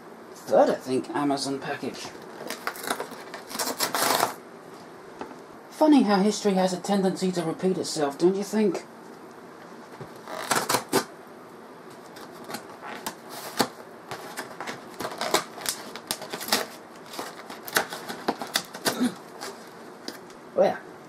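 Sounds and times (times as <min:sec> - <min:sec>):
cardboard box being torn open: 0:02.4 - 0:04.4, 0:10.3 - 0:11.1, 0:12.2 - 0:19.6.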